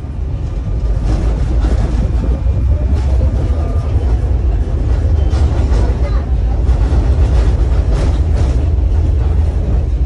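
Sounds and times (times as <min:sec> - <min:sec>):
tram rumbling on rails: 0:00.0 - 0:10.0.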